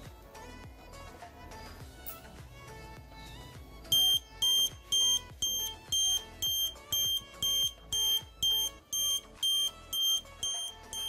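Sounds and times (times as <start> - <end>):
background music: 0.0 - 11.0
alarm buzzer beeping: 3.9 - 11.0.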